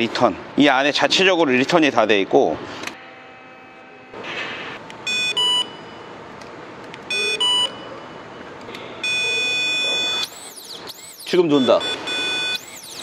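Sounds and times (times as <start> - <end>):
long steady beep: 5.0 - 6.2, 7.1 - 13.0
two-tone double beeps: 5.1 - 6.1, 7.1 - 8.4, 9.0 - 13.0.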